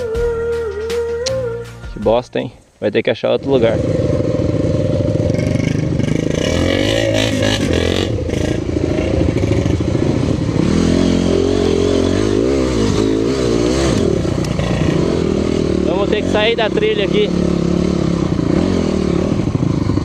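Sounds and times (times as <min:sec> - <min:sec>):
dirt bike engine revving: 0:03.4 - 0:20.0.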